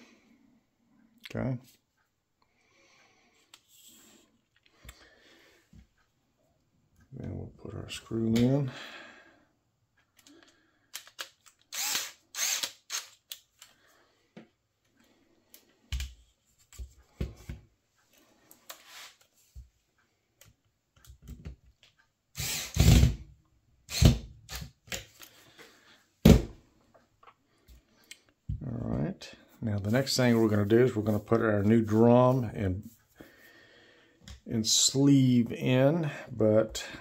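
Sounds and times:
cordless screwdriver driving screw: 0:11.0 - 0:13.4, 0:22.4 - 0:23.1.

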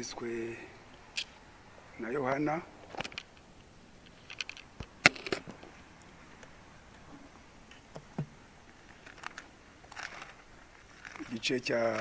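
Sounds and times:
pages rustling: 0:08.7 - 0:12.0.

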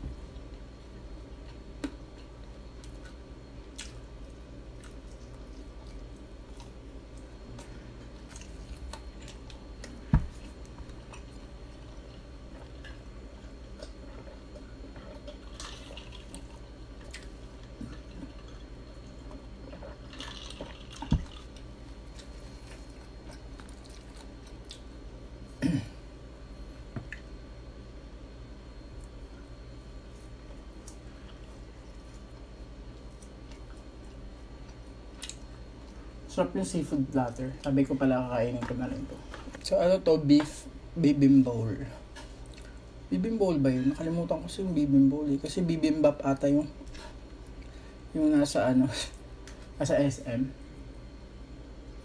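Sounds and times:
person chewing: 0:01.2 - 0:25.0, 0:28.9 - 0:36.1, 0:42.2 - 0:42.9.

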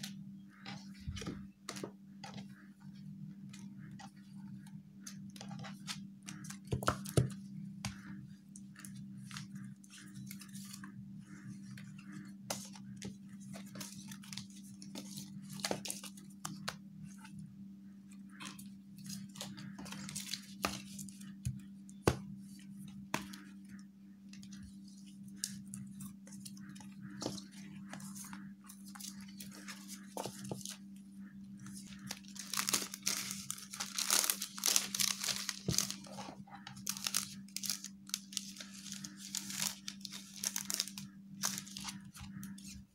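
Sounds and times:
steady low hum: 0:00.0 - 0:42.9
cardstock sheets rustling and tapping: 0:25.4 - 0:30.8, 0:31.6 - 0:42.7
plastic film crinkling: 0:31.7 - 0:36.2, 0:36.8 - 0:42.5.

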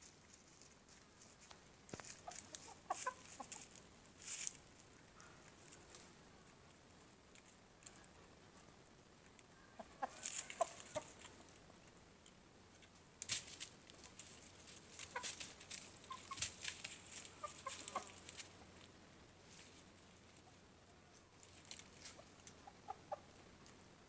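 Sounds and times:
rooster clucking softly: 0:02.0 - 0:03.8, 0:09.4 - 0:11.8, 0:14.8 - 0:18.7, 0:20.2 - 0:23.8.

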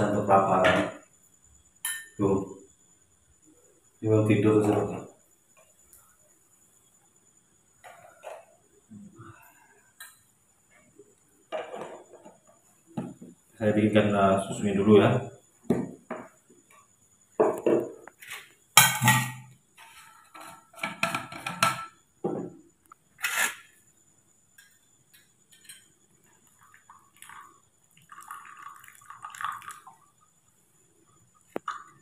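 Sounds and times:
tableware clattering on metal tray: 0:18.8 - 0:22.5, 0:25.5 - 0:25.9
hot water pouring into mug: 0:26.2 - 0:30.4.

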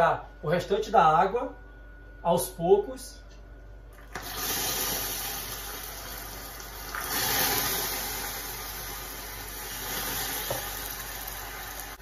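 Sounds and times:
caramel hissing and bubbling: 0:04.2 - 0:12.0.

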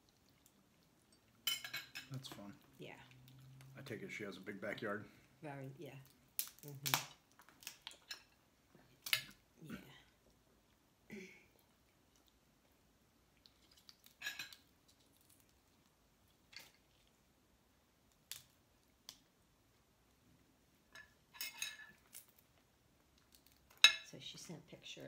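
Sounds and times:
crab shells cracking and clicking: 0:06.0 - 0:08.4, 0:09.0 - 0:09.4, 0:13.4 - 0:17.1, 0:18.0 - 0:19.4, 0:21.9 - 0:23.9.

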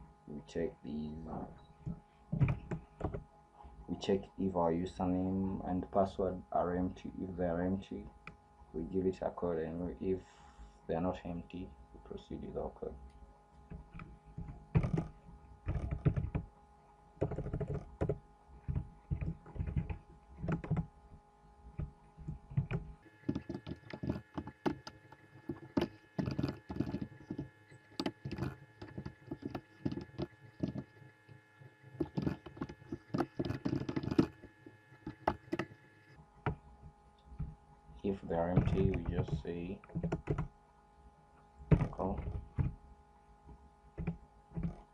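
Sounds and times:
faint electrical hum: 0:00.0 - 0:44.9
keyboard typing: 0:13.7 - 0:16.5, 0:17.2 - 0:20.9, 0:21.7 - 0:31.1, 0:31.9 - 0:35.8, 0:38.5 - 0:40.5.

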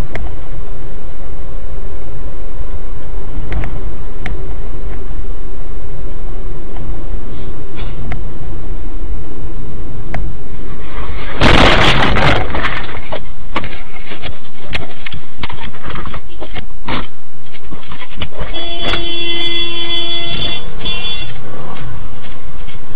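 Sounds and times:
motorcycle crashing and scraping: 0:10.8 - 0:19.6.

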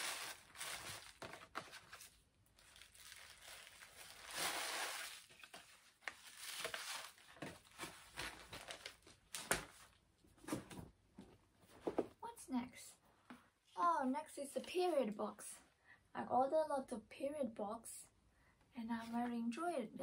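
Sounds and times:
cardboard packaging rustling: 0:00.0 - 0:10.8.

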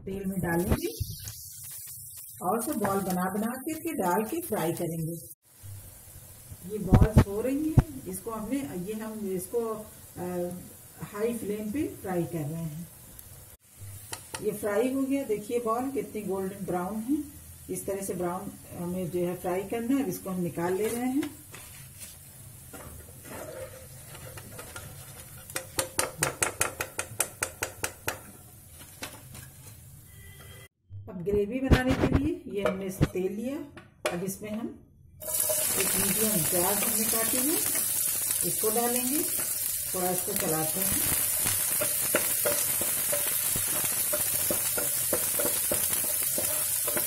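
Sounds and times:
onion sizzling in oil: 0:00.2 - 0:30.2, 0:35.2 - 0:47.0
wooden spatula scraping a pan: 0:20.6 - 0:25.8, 0:40.8 - 0:47.0
skimmer tapping frying pan: 0:25.5 - 0:28.3, 0:35.2 - 0:47.0.

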